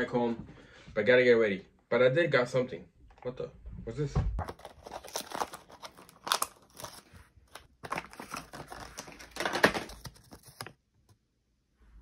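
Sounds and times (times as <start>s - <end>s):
plastic blister pack crinkling: 4.5s - 10.7s.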